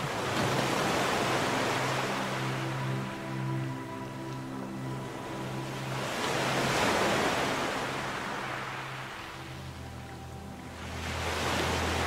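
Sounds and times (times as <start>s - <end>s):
low steady drone: 0.0s - 12.0s
ocean surf: 0.0s - 12.0s.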